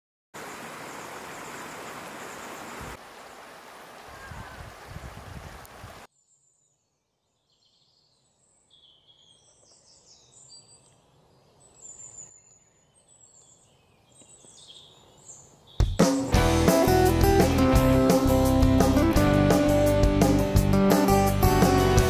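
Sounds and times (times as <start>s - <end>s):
birds chirping: 0.4s - 3.0s, 6.2s - 16.2s
stream water running: 0.4s - 6.1s
guitar music: 16.0s - 22.0s.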